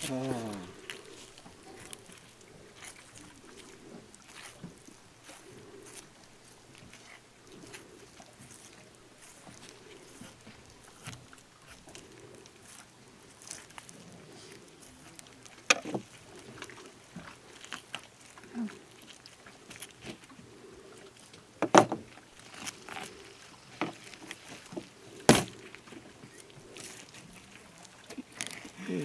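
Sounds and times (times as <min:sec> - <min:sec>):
knife cutting and scraping fish: 0:00.0 - 0:18.7
sharp knocks on wooden board: 0:21.6 - 0:22.0.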